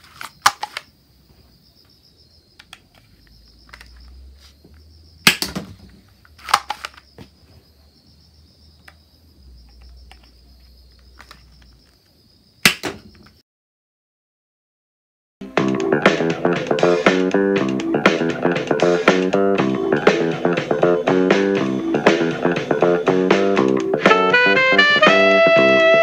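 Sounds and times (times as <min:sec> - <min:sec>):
toy dart gun shots: 0:05.2 - 0:05.7, 0:12.6 - 0:13.1.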